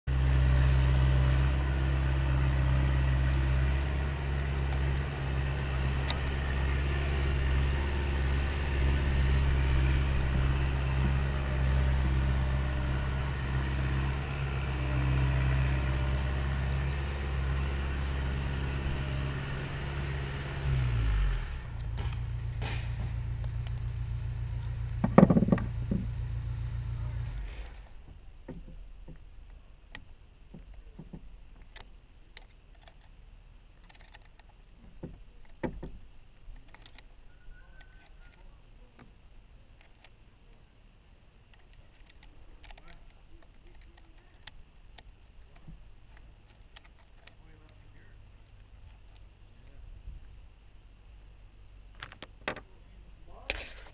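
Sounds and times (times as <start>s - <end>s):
engine humming: 0.0s - 53.9s
sharp knocks: 25.0s - 26.1s, 34.9s - 36.0s.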